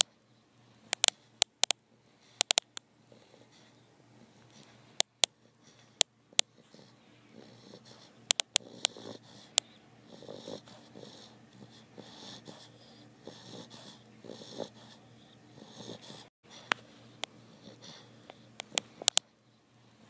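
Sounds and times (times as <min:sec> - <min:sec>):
sharp clicks: 0:00.9 - 0:01.8, 0:02.4 - 0:02.8, 0:08.3 - 0:09.0, 0:18.6 - 0:19.2
dog snoring: 0:03.1 - 0:04.4, 0:05.5 - 0:16.7, 0:17.4 - 0:18.8.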